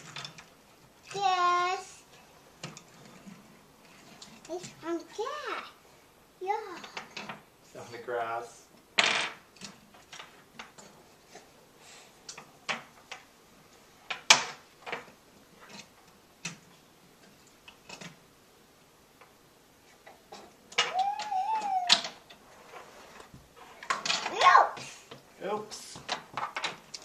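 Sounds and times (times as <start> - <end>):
wooden toys clacking on table: 9.0 - 11.0, 20.0 - 22.4, 23.8 - 24.4, 26.0 - 27.0.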